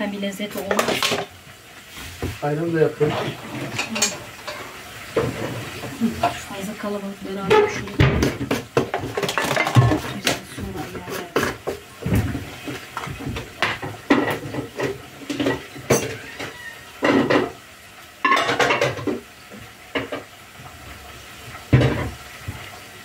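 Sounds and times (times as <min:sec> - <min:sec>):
dishes and cutlery clinking: 0:03.1 - 0:05.6, 0:07.5 - 0:11.8, 0:12.6 - 0:17.6, 0:18.2 - 0:19.2.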